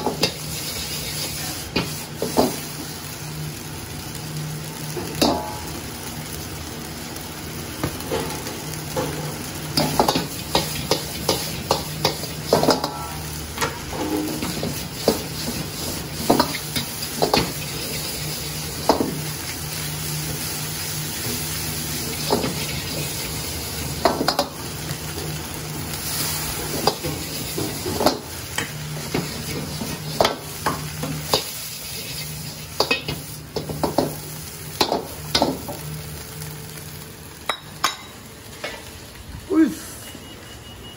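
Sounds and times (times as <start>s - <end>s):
rice sizzling in a wok: 0.0s - 40.9s.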